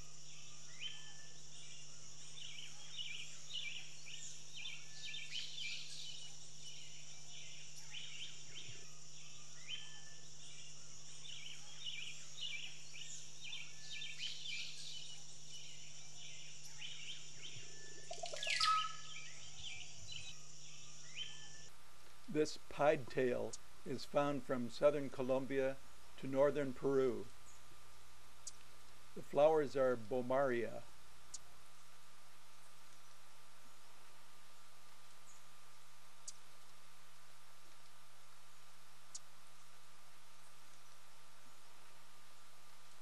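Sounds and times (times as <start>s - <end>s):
steady high hiss: 0.0s - 43.0s
birds chirping and calling: 2.2s - 20.4s.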